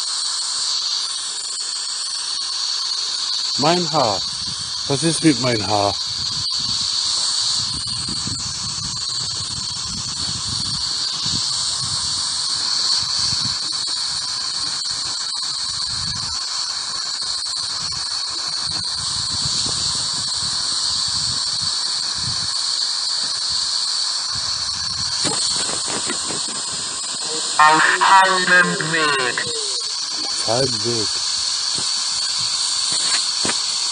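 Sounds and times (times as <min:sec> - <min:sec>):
radio static hiss: 0:02.9 - 0:06.0, 0:25.2 - 0:33.9
high whine: 0:25.3 - 0:31.2.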